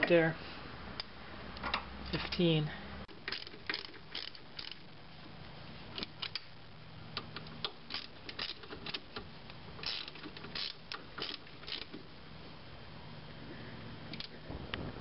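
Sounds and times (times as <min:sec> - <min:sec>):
ratchet wrench clicking: 0:03.2 - 0:04.8, 0:07.2 - 0:09.0, 0:09.8 - 0:12.0.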